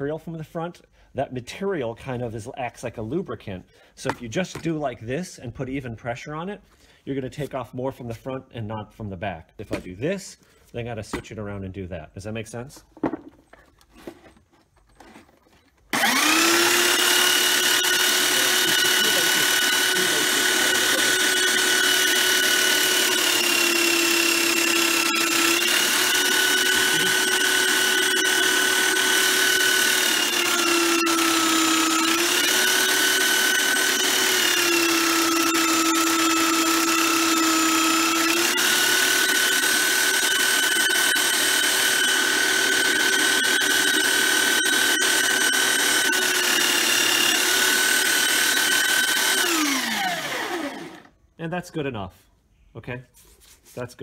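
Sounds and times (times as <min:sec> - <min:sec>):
belt sander whining: 0:15.8 - 0:51.2.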